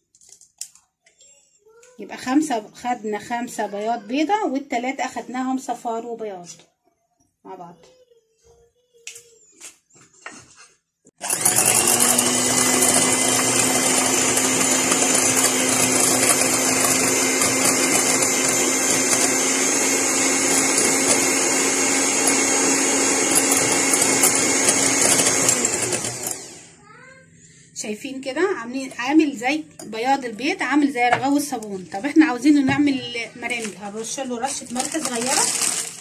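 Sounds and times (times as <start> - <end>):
electric mixer beating egg whites: 11.2 - 26.8, 33.8 - 36.0.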